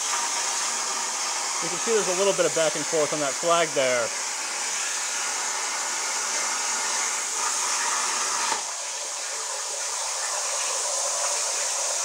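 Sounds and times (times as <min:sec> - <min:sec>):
air hissing: 0:00.0 - 0:08.8
plasma cutter arc hissing: 0:00.0 - 0:12.0.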